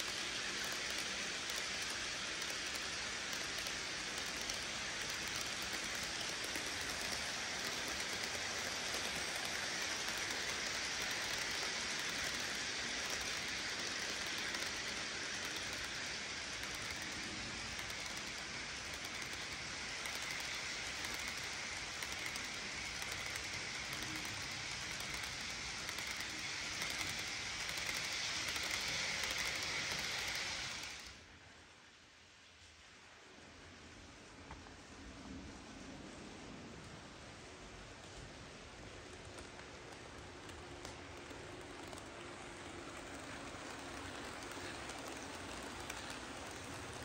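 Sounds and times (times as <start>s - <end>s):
model train wheels rolling on rails: 0.0s - 47.0s.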